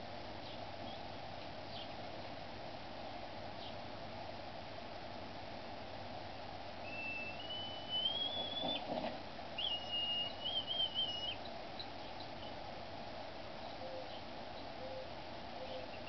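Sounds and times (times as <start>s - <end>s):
high-pitched whistles: 6.9s - 8.8s, 9.6s - 11.4s.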